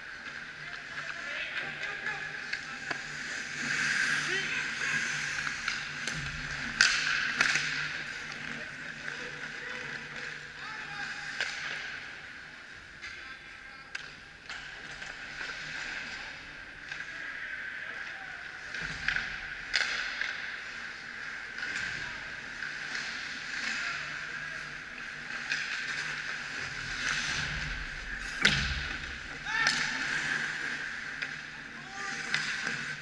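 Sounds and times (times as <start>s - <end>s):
skates scraping on ice: 0.0s - 12.3s, 18.6s - 33.0s
hockey sticks and puck knocking: 4.9s - 8.6s, 18.7s - 20.6s, 25.3s - 30.5s.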